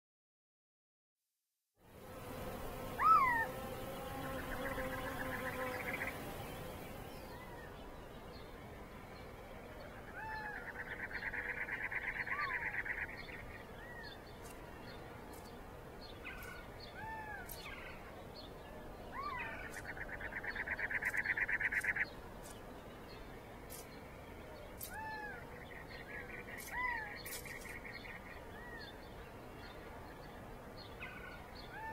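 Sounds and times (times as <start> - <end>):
bird trills: 3.0 - 3.6, 19.1 - 22.6.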